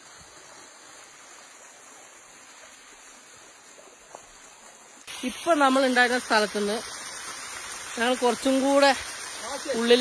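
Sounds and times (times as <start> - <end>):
waterfall rushing: 5.1 - 10.0.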